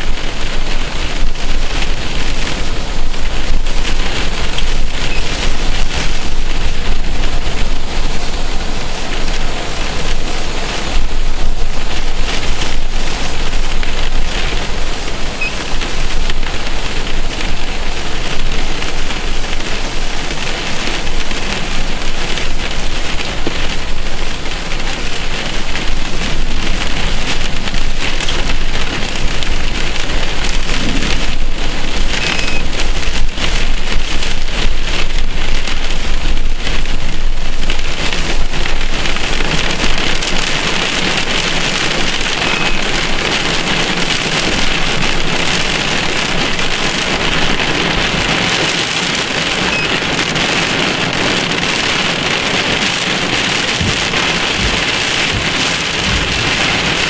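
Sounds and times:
heavy rain hissing: 0.0s - 57.0s
low thunder rumble: 25.9s - 40.2s, 53.6s - 57.0s.

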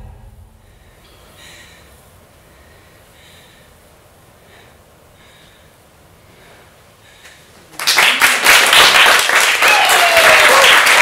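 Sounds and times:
person breathing hard: 0.5s - 7.6s
audience applause: 7.8s - 11.0s.

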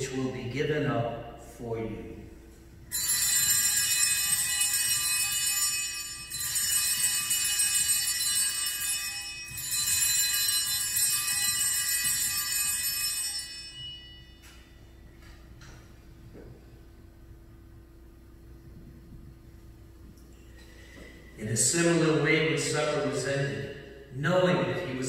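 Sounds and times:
altar bells jingling: 2.9s - 15.0s.

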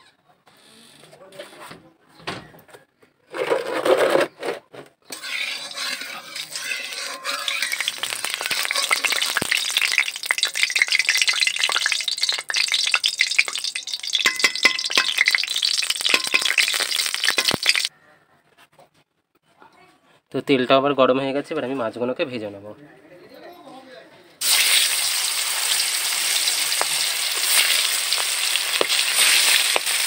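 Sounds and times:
oil sizzling and crackling: 5.1s - 17.9s, 24.4s - 30.0s
spatula stirring in metal pan: 5.1s - 17.9s.

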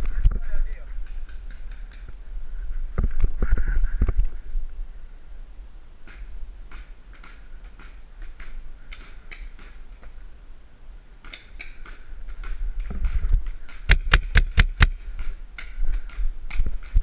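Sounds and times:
paintball marker shots: 6.0s - 9.8s, 11.2s - 17.0s.

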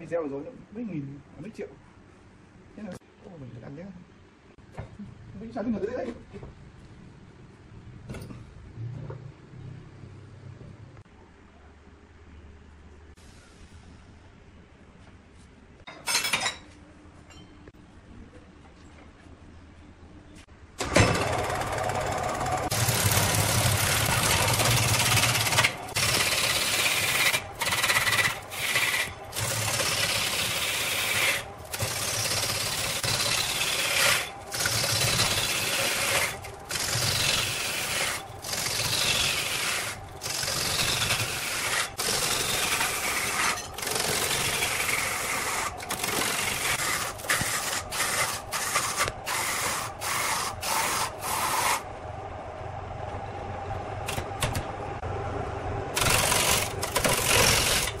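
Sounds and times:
lathe humming: 21.2s - 51.8s
lathe tool scraping wood: 21.2s - 51.8s, 56.0s - 58.0s.

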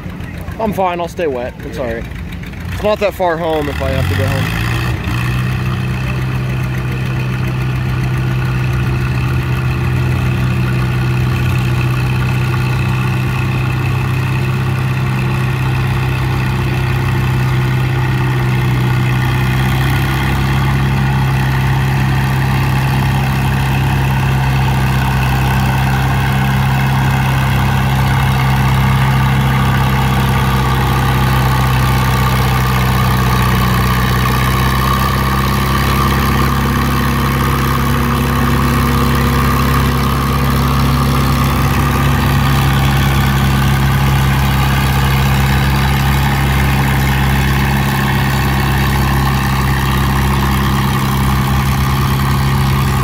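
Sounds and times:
tractor engine running under load: 0.0s - 53.0s.

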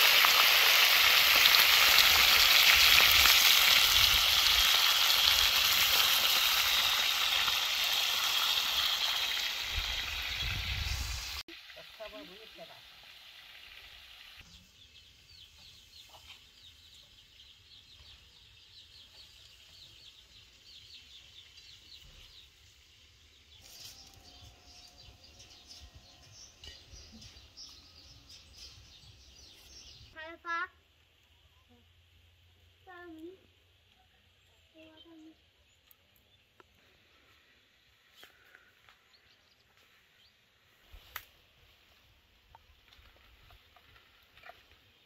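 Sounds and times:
meat sizzling in a pan: 0.0s - 14.4s
bird chirping: 14.4s - 30.2s.

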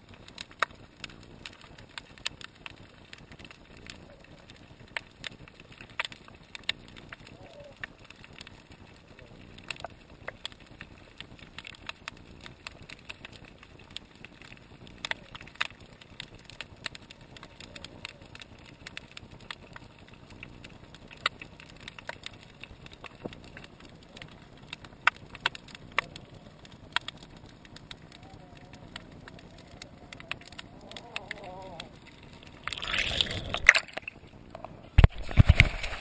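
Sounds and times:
snapping shrimp clicks: 21.1s - 34.2s.

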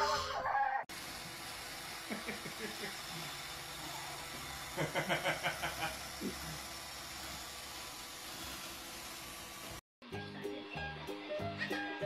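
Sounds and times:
robot vacuum cleaner hissing: 0.9s - 9.8s.

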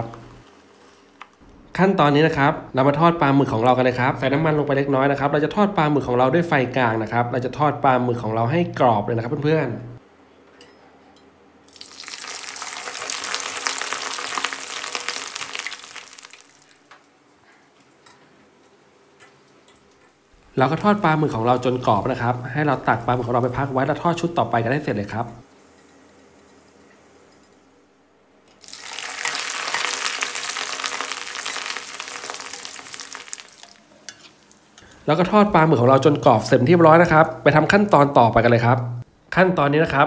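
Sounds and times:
food sizzling in hot oil: 11.7s - 16.9s, 28.6s - 35.0s.

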